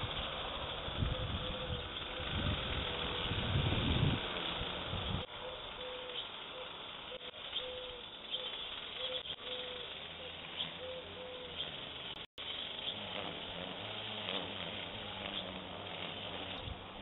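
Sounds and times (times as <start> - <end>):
steady outdoor hiss: 0.0 - 17.0
dove cooing: 5.3 - 11.8.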